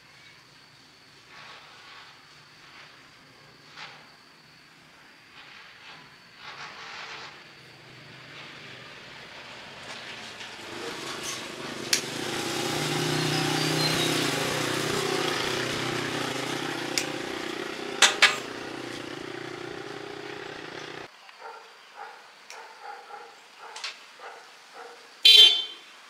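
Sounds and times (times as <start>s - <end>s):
vehicle engine running: 9.4s - 21.1s.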